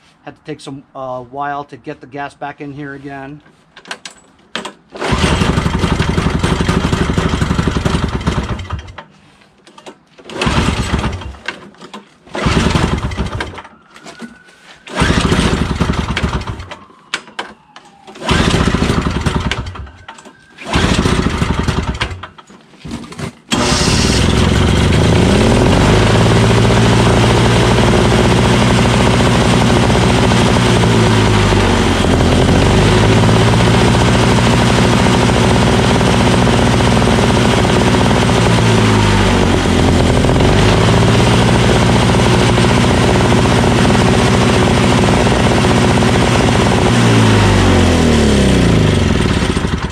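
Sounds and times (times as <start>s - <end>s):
electric starter cranking engine: 4.6s - 9.1s, 9.7s - 14.3s, 14.9s - 17.5s, 18.1s - 49.9s
snowblower engine running: 5.0s - 9.0s, 10.3s - 11.6s, 12.3s - 13.6s, 14.9s - 16.7s, 18.2s - 19.9s, 20.7s - 22.9s, 23.5s - 49.9s.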